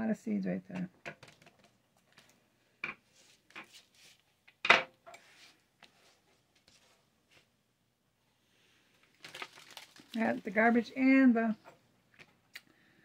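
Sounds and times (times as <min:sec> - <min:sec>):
seeds rustling on a mat: 0:09.1 - 0:10.9.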